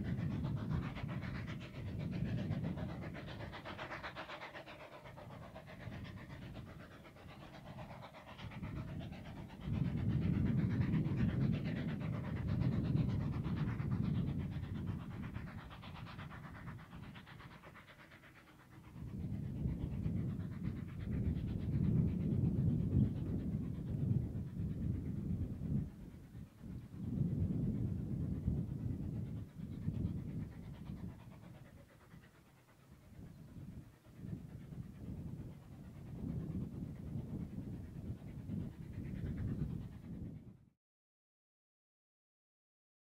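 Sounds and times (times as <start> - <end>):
steam locomotive chuffing: 0.0 - 27.0
low train rumble: 0.0 - 40.1.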